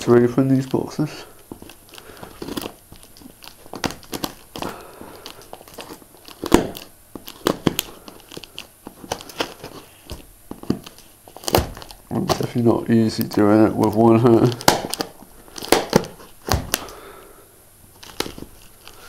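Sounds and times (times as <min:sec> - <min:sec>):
tape crinkling and crackling: 0:00.0 - 0:17.2, 0:17.9 - 0:19.0
scissors cutting plastic tape: 0:13.2 - 0:17.0.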